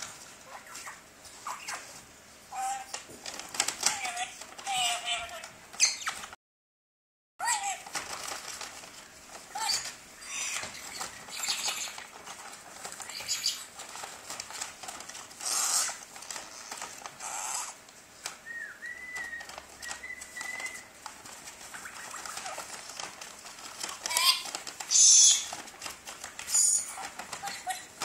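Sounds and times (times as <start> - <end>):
parrot squawking: 0.4 - 3.0, 3.8 - 6.3, 9.5 - 12.2, 13.0 - 13.7, 15.4 - 16.0, 17.2 - 17.8, 21.7 - 22.9, 24.0 - 25.6, 26.5 - 27.9
paper bag rustling: 7.6 - 17.4, 18.0 - 28.0
thin whistled notes: 18.4 - 20.9.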